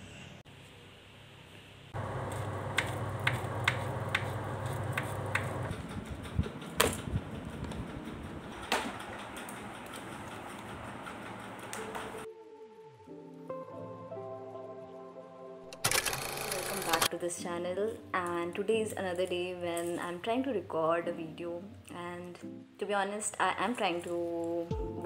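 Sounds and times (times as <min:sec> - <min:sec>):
steamer hissing: 0:02.0 - 0:06.1
garment steamer humming: 0:02.0 - 0:12.3
sharp clicks and knocks: 0:02.0 - 0:12.3.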